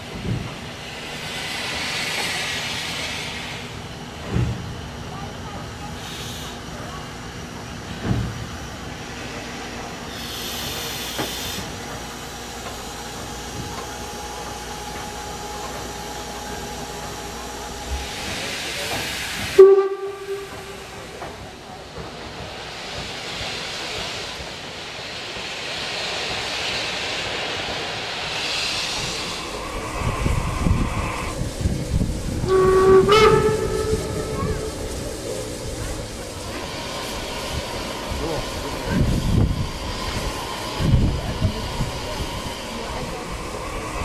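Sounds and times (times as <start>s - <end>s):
steam hissing: 0.0s - 44.0s
locomotive whistle toot: 19.6s - 21.0s, 32.4s - 35.0s.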